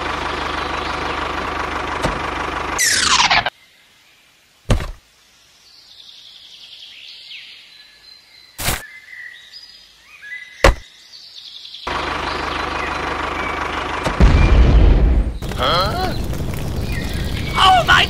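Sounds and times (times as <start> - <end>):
tractor engine running: 0.0 - 3.5, 11.9 - 18.0.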